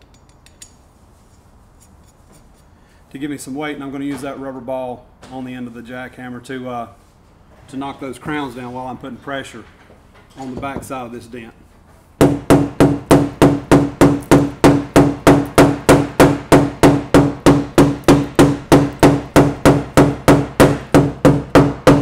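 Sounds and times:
tool tapping on metal: 0:12.2 - 0:22.0.

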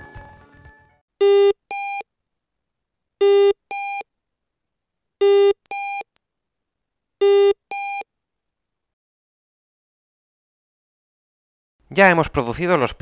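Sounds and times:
two-tone speaker beeps: 0:01.2 - 0:02.0, 0:03.2 - 0:04.0, 0:05.2 - 0:06.1, 0:07.2 - 0:08.0.

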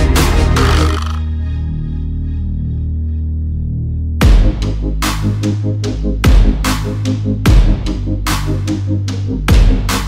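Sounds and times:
held bass: 0:00.0 - 0:01.6
deep kick drum: 0:04.2 - 0:04.7, 0:06.2 - 0:06.7, 0:07.5 - 0:07.9, 0:09.5 - 0:10.0.

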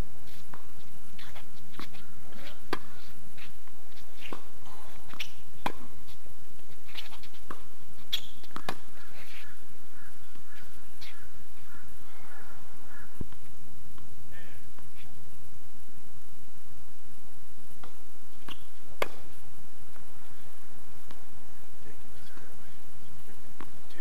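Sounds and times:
tennis balls off racket strings: 0:00.3 - 0:09.5, 0:17.7 - 0:22.6
balls bouncing on hard court: 0:00.4 - 0:06.1, 0:06.9 - 0:11.2, 0:17.8 - 0:21.3.

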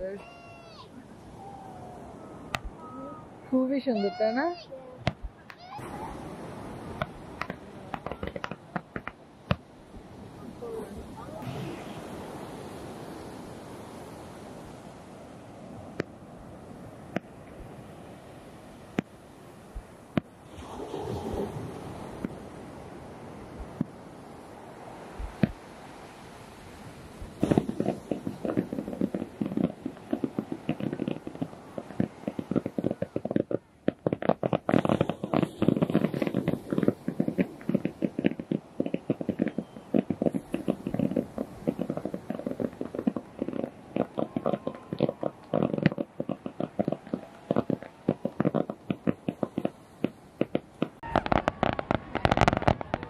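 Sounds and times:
fireworks popping and crackling: 0:05.0 - 0:09.7, 0:25.2 - 0:25.6, 0:27.3 - 0:53.0.

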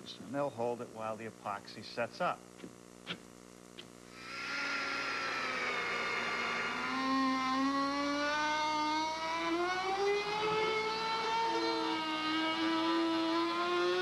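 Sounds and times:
router motor whine: 0:04.1 - 0:14.0.

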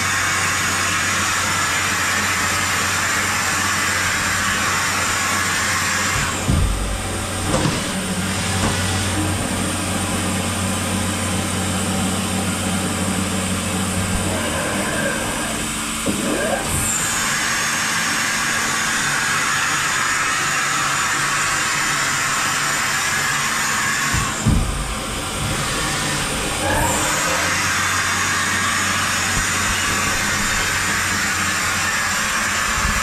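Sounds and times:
machine mechanical hum: 0:00.0 - 0:33.0
motor whine: 0:00.0 - 0:33.0
machine clunk: 0:06.1 - 0:09.4, 0:24.1 - 0:25.6.

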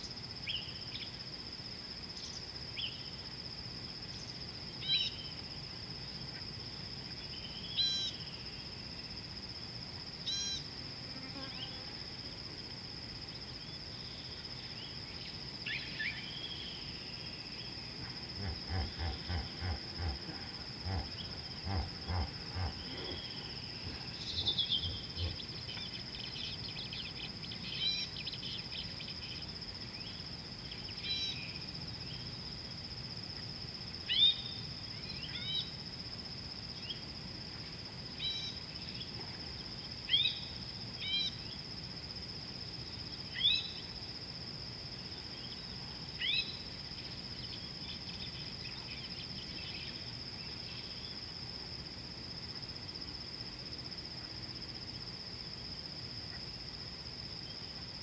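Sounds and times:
high-pitched insect chorus: 0:00.0 - 0:58.0.

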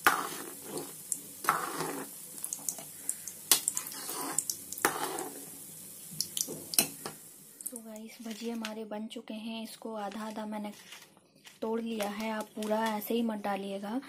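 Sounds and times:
metal ladle scraping pot: 0:00.0 - 0:02.1
food sizzling in oil: 0:00.0 - 0:08.3.

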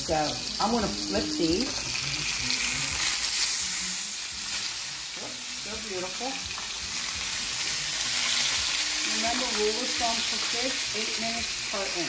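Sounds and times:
fish sizzling in a frying pan: 0:00.0 - 0:12.0.

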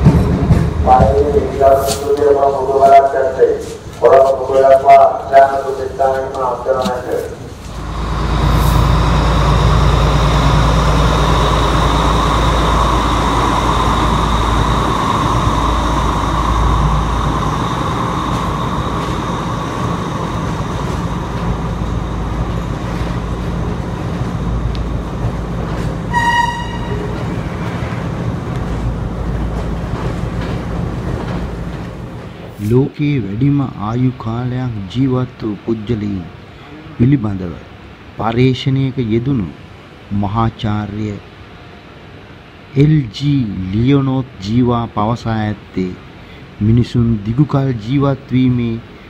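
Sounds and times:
train rumbling: 0:00.0 - 0:36.4
high ringing whine: 0:07.7 - 0:25.2.

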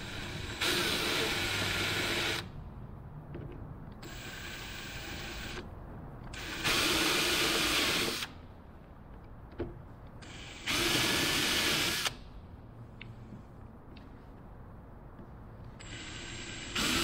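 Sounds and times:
cordless drill running: 0:00.0 - 0:02.5, 0:10.3 - 0:12.2, 0:15.8 - 0:17.0.

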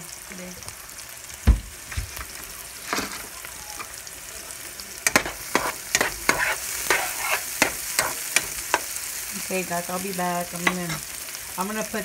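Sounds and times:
vegetables sizzling in oil: 0:00.0 - 0:12.0
spatula scraping pan: 0:05.1 - 0:09.0, 0:10.6 - 0:11.1.

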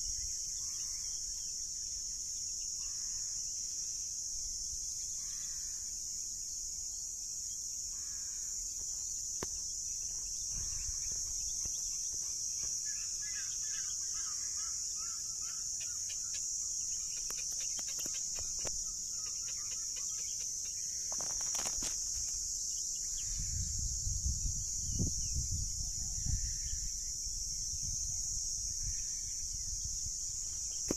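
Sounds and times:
high-pitched insect drone: 0:00.0 - 0:30.9
birds chirping: 0:09.0 - 0:21.8.

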